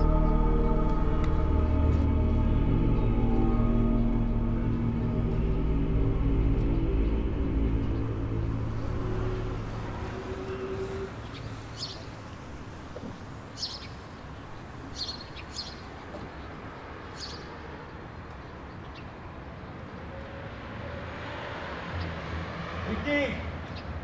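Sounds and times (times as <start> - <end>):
bird chirping: 0.0 - 17.5.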